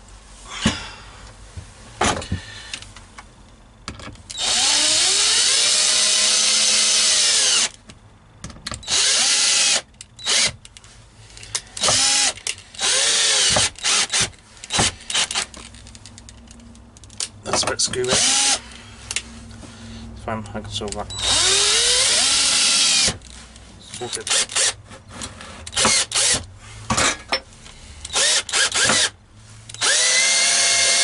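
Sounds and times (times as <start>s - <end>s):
cordless drill driving screws: 4.3s - 7.7s, 8.8s - 10.6s, 11.8s - 15.5s, 18.1s - 18.7s, 21.1s - 23.3s, 24.1s - 24.8s, 25.7s - 26.4s, 28.1s - 31.0s.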